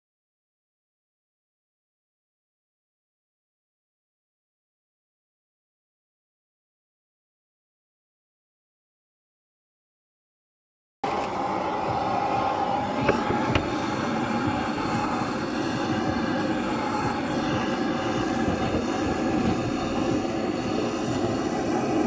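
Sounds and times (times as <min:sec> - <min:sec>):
gas blowtorch roaring: 0:11.0 - 0:22.0.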